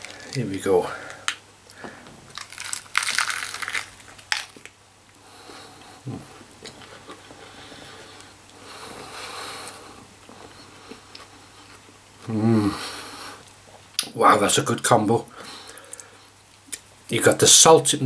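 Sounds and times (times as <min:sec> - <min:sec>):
person crunching lettuce: 0:00.0 - 0:00.4, 0:01.1 - 0:04.8.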